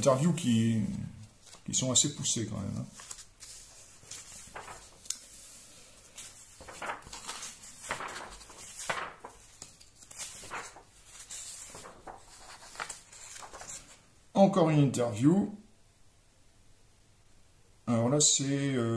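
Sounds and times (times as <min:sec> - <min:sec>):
magazine pages turning: 0:00.0 - 0:14.1.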